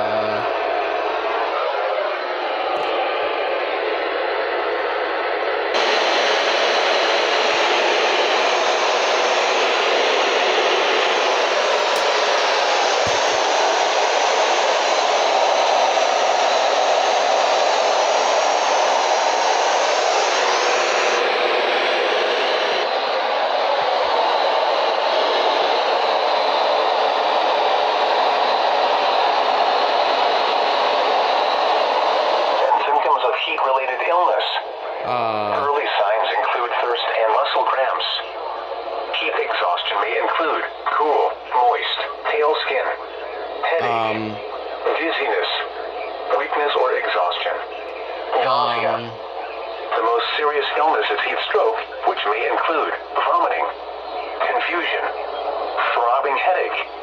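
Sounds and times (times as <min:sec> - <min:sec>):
radio static hiss: 0:11.0 - 0:14.0, 0:35.1 - 0:38.6, 0:39.2 - 0:57.0.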